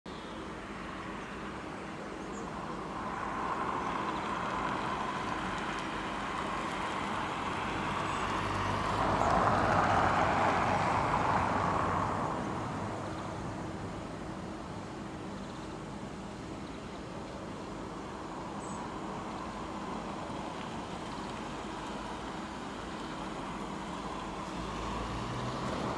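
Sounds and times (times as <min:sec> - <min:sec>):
distant vehicle passing: 0:02.6 - 0:13.9, 0:18.3 - 0:25.9.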